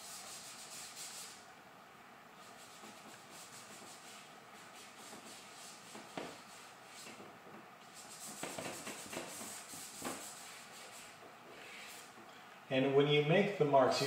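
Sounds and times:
fingertips rubbing charcoal on paper: 2.4 - 7.2, 7.9 - 12.1.

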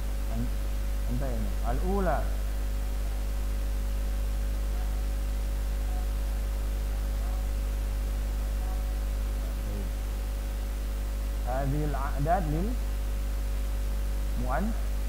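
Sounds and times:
electrical mains hum: 0.0 - 15.0
faint voice: 4.6 - 7.6, 8.3 - 9.9, 14.4 - 14.8.

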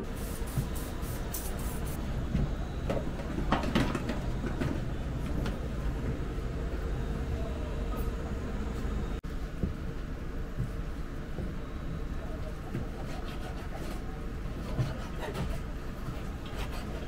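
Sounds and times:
faint steady hum: 0.0 - 17.0
kitchen equipment rumble: 1.4 - 9.2.

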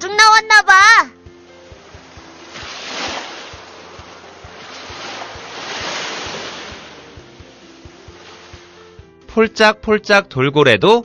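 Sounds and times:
ocean waves washing in: 1.2 - 9.1.

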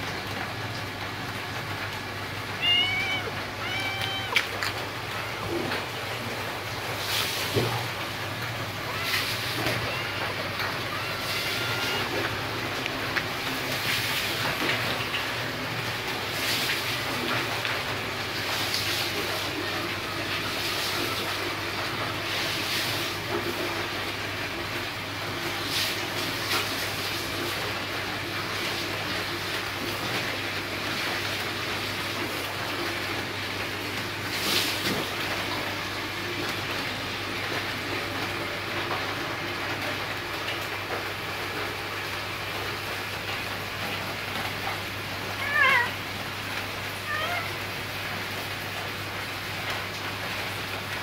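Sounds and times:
cat meowing: 2.5 - 5.9, 8.8 - 12.6, 45.4 - 46.0, 46.9 - 47.7.

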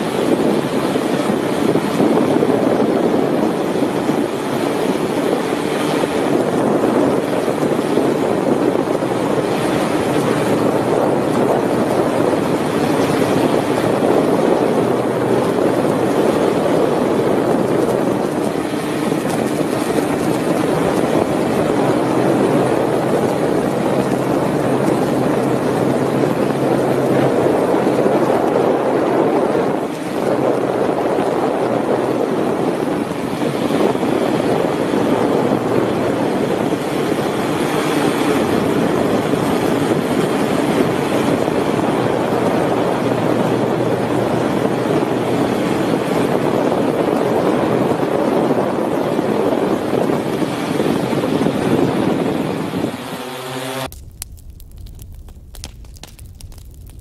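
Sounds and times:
drone propellers whirring: 52.0 - 54.2.

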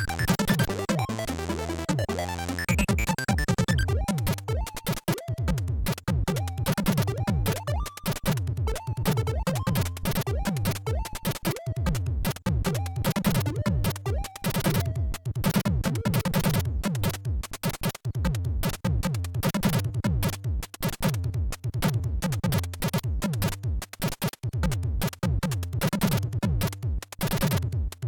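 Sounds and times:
fast electronic chiptune music: 0.0 - 17.3.

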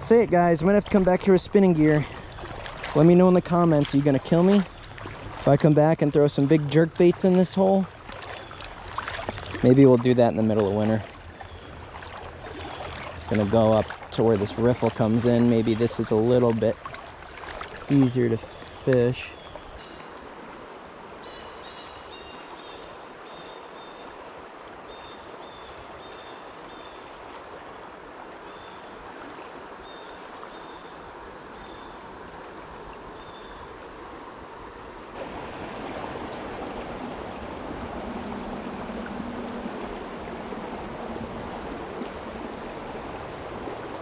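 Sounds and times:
creek water rushing over rocks: 0.0 - 23.2, 33.7 - 44.0.

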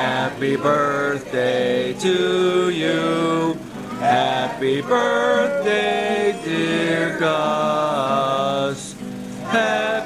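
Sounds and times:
person singing long notes: 0.0 - 10.0
music: 3.4 - 10.0.

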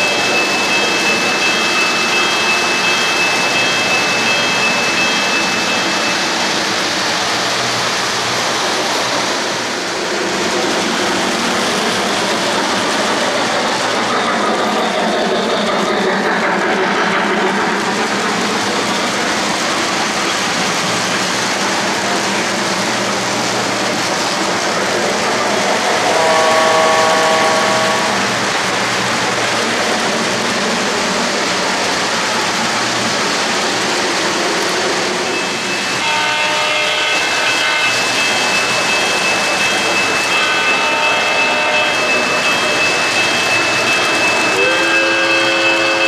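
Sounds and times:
steady high tone: 24.7 - 28.4
train horn blast: 26.0 - 28.3, 36.0 - 38.0, 40.3 - 42.2, 44.6 - 46.0.

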